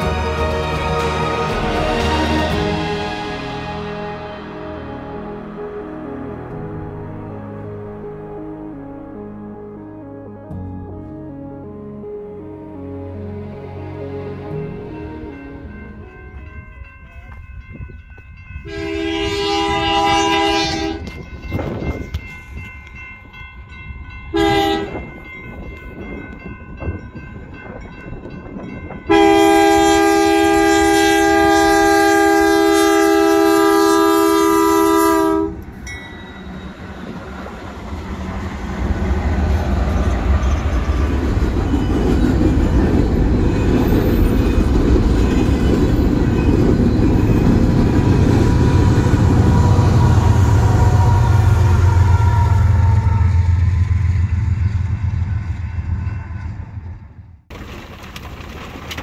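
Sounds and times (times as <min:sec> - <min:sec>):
train rumbling past: 0:00.0 - 0:59.0
train air horn: 0:18.6 - 0:21.2, 0:24.3 - 0:25.0, 0:29.1 - 0:35.6, 0:49.3 - 0:54.0
wheels clacking on rails: 0:35.6 - 0:59.0.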